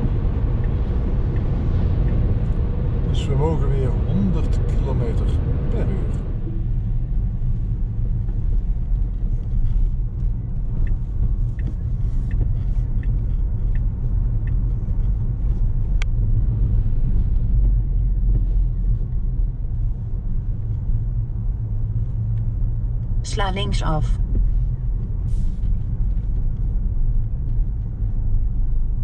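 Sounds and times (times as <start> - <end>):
light ticks: 0.0 - 2.7, 8.1 - 21.0
car road and tyre rumble: 0.0 - 29.0.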